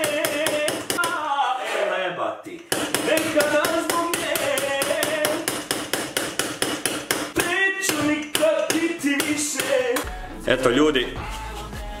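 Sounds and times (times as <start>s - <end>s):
mallet knocking on biscuits: 2.7s - 9.8s.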